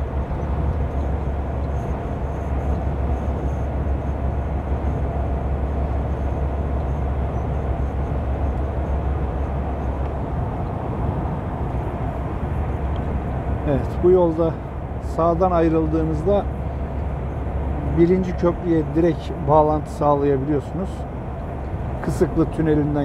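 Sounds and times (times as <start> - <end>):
engine and tyre rumble: 0.0 - 23.0
vehicle road noise: 0.0 - 23.0.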